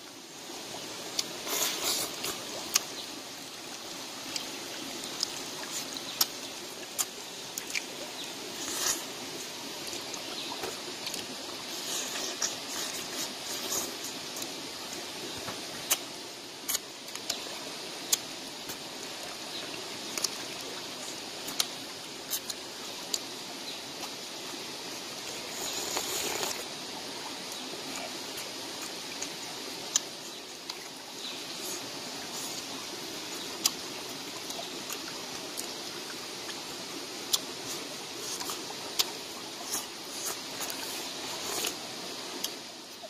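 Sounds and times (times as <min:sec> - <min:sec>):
shallow stream running: 0:00.0 - 0:43.0
eating smacks and clicks: 0:16.7 - 0:17.4, 0:20.1 - 0:20.5, 0:21.4 - 0:23.3, 0:37.3 - 0:40.9.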